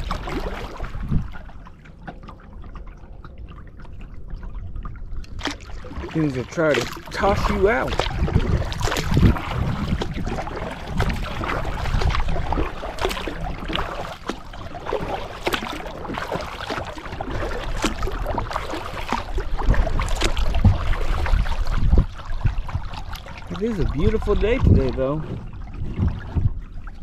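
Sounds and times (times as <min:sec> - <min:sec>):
wind buffeting microphone: 0:00.0 - 0:01.6, 0:04.7 - 0:27.0
steady low rumble: 0:00.0 - 0:16.1
water splashing against kayak hull: 0:00.0 - 0:27.0.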